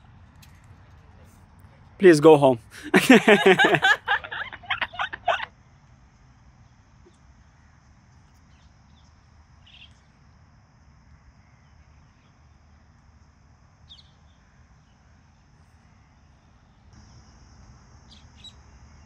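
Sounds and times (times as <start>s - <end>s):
bird chirps: 13.9s - 15.0s, 18.1s - 18.6s.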